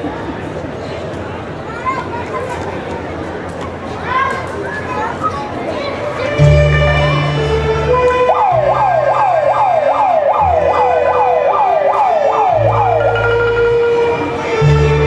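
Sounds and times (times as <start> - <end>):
held low bass notes: 6.4 - 15.0
siren-like gliding tone: 8.0 - 14.4.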